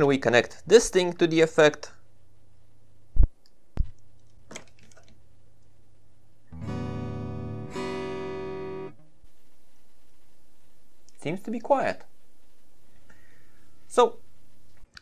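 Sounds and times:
low steady hum: 0:05.2 - 0:15.0
electric guitar notes: 0:06.5 - 0:09.0.

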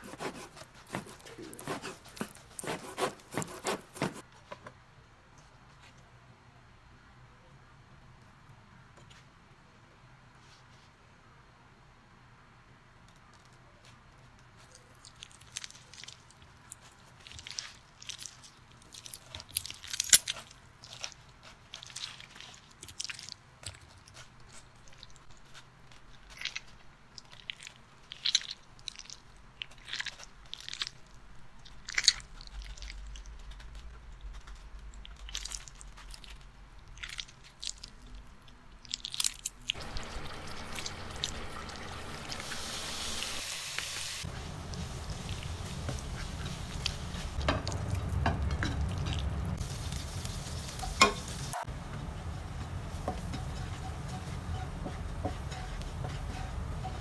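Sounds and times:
knife cutting pineapple: 0:00.0 - 0:04.3
sausage sizzling in a wok: 0:39.8 - 0:57.0
spatula stirring in a wok: 0:39.8 - 0:57.0.

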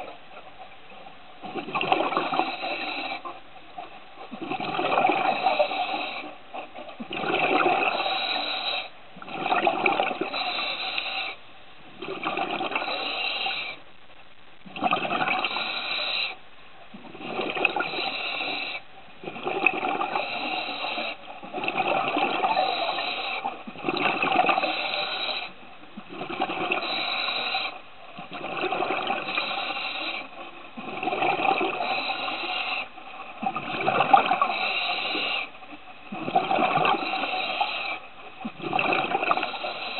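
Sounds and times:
air bubbles underwater: 0:01.4 - 0:03.3, 0:04.3 - 0:13.8, 0:14.6 - 0:16.2, 0:16.9 - 0:39.9
diver breathing through regulator: 0:01.6 - 0:03.4, 0:04.8 - 0:06.4, 0:07.3 - 0:11.4, 0:12.2 - 0:13.8, 0:15.1 - 0:16.4, 0:17.2 - 0:25.6, 0:26.2 - 0:27.8, 0:28.5 - 0:35.6, 0:36.2 - 0:39.9.

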